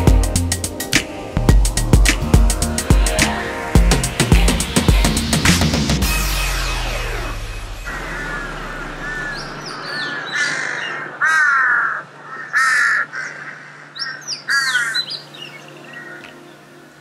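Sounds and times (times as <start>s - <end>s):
higher bird calls: 7.8s - 16.8s
crow cawing: 7.9s - 15.1s.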